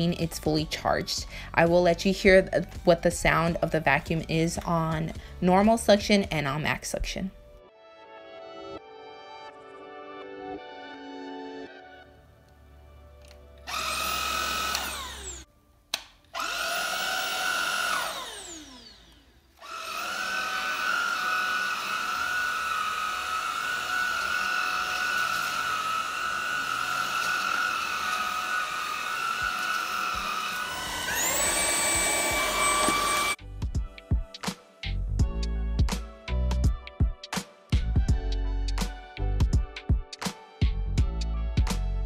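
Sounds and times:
cordless vacuum motor running: 13.6 - 15.5, 16.4 - 33.4.

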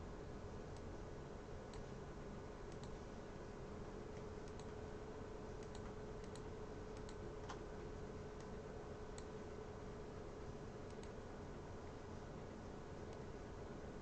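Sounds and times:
faint hum: 0.0 - 14.0
computer keyboard and mouse clicks: 2.7 - 3.0, 4.1 - 4.8, 5.6 - 7.7, 10.8 - 11.2.

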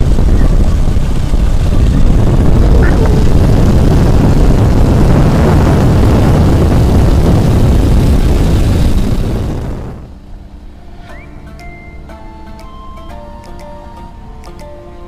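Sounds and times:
wind buffeting microphone: 0.0 - 10.4.

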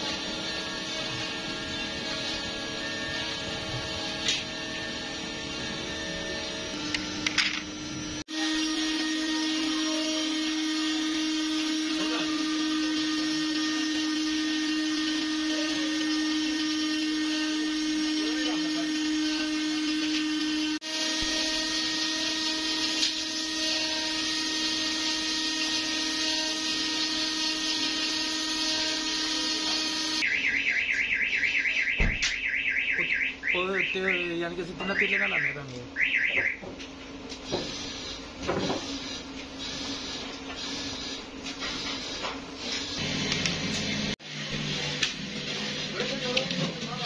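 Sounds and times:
steady machine drone: 0.0 - 12.6.

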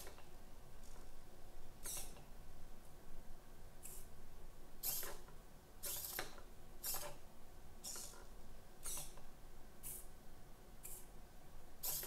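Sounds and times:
servo motors whirring: 7.9 - 8.2.

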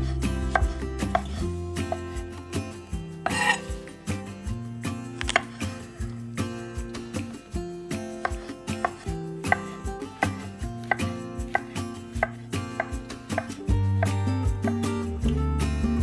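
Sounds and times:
background music: 0.0 - 16.0
knife slicing on wooden cutting board: 3.2 - 3.7, 5.2 - 5.7, 8.2 - 13.6.

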